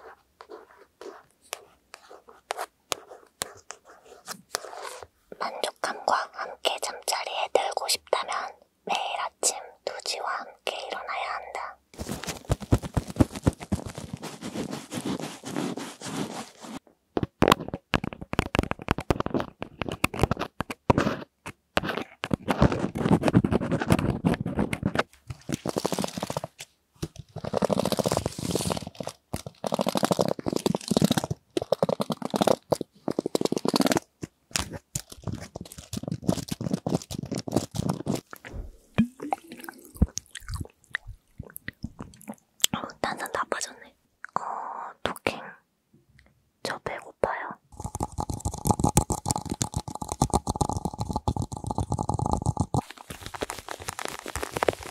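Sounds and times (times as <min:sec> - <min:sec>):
nails tapping and scratching fabric: 0:11.9 - 0:43.8, 0:47.7 - 0:54.9
plastic bottle being handled: 0:12.0 - 0:43.9, 0:47.8 - 0:54.9.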